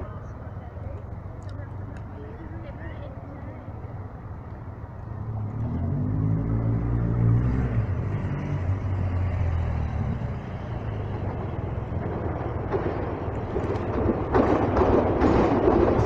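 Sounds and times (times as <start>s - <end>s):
vehicle engine humming: 0.0s - 16.0s.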